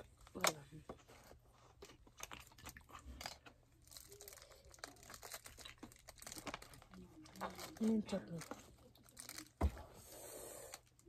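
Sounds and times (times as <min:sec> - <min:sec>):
plastic crinkling: 0:01.6 - 0:09.9.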